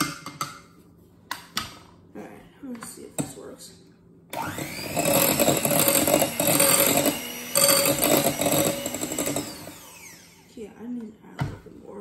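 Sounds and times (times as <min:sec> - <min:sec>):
electric mixer whirring: 0:04.3 - 0:10.5.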